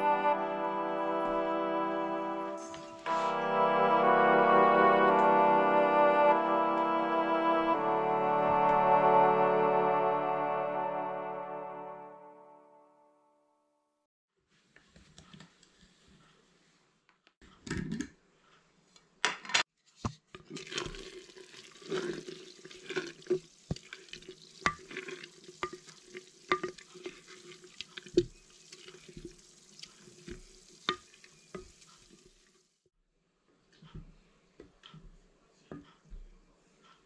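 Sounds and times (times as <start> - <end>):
wet squelching and sloshing: 20.5 - 32.4.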